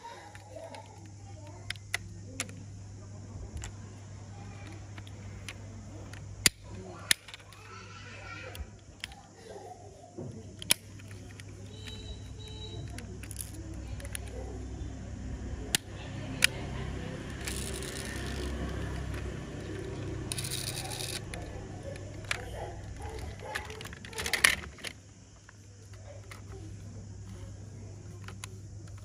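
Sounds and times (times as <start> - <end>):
toy cars clattering: 0.0 - 2.6, 3.6 - 14.6, 15.7 - 27.4
toy car doors clicking shut: 4.5 - 9.2, 10.4 - 14.4, 15.7 - 26.6
toy cars scraping plastic basket: 17.3 - 25.0.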